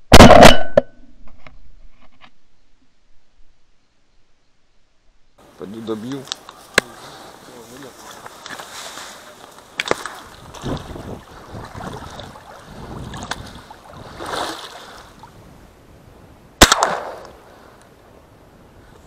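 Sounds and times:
loud shotgun shot with echo: 0:00.1 - 0:00.6, 0:16.6 - 0:17.3
water splashing from paddling: 0:07.8 - 0:15.4.

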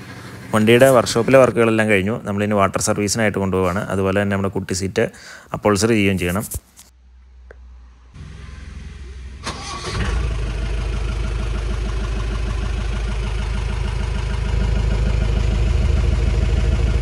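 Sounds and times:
diesel engine idling: 0:00.0 - 0:02.6, 0:08.0 - 0:17.0
diesel engine starter cranking: 0:08.2 - 0:14.9.

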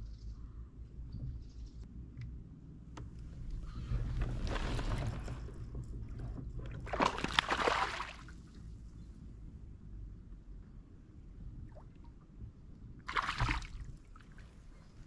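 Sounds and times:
fish thrashing water splashing: 0:06.8 - 0:08.3, 0:13.1 - 0:13.8.

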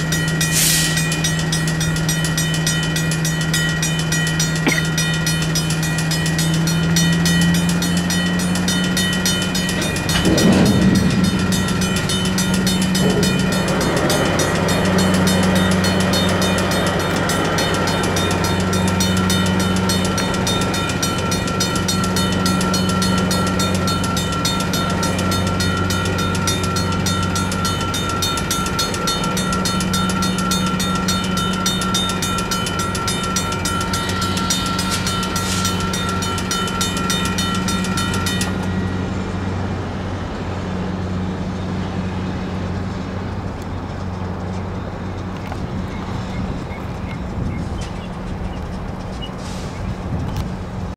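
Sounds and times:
diesel locomotive running: 0:00.0 - 0:50.9
railroad crossing bells ringing: 0:00.0 - 0:50.9
rush of noise: 0:09.8 - 0:17.8.

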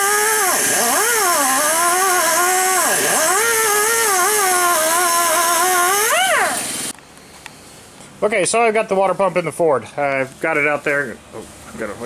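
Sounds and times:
abrasive wheel grinding steel: 0:00.0 - 0:06.9
cut-off tool whining: 0:00.0 - 0:07.0.

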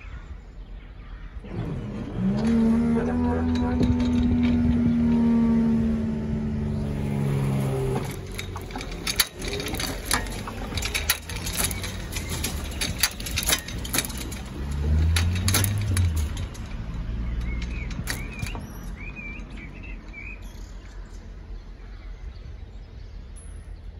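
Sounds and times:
car driving over crossing: 0:01.4 - 0:20.4
sharp clicks and knocks: 0:01.5 - 0:21.1.

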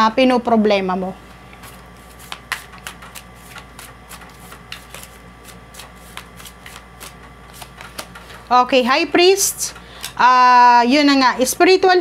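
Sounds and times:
cards being shuffled by hand: 0:01.5 - 0:08.6.

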